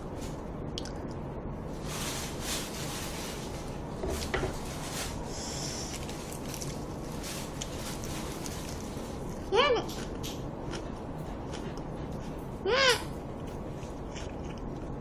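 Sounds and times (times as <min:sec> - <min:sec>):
low steady hum: 0:00.0 - 0:15.0
leaf wrap rustling by hand: 0:01.7 - 0:09.5.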